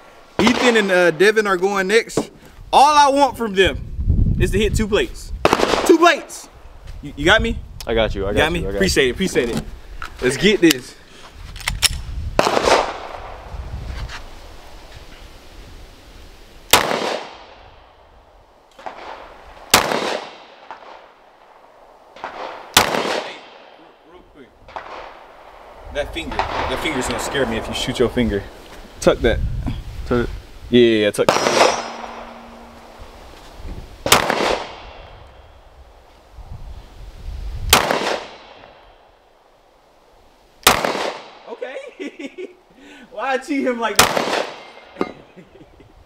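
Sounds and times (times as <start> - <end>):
pistol shots: 5.4 - 6.0, 12.4 - 13.3, 16.7 - 17.7, 18.8 - 21.0, 22.2 - 23.8, 31.3 - 32.4, 34.0 - 35.1, 37.7 - 38.8, 40.6 - 41.4, 44.0 - 45.0.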